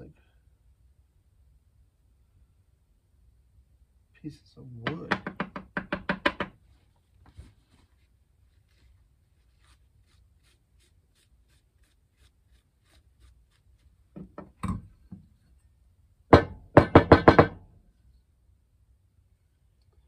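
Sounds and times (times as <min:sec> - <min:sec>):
metal pump knocking on wooden bench: 0:04.8 - 0:06.6, 0:14.2 - 0:15.2, 0:16.4 - 0:17.6.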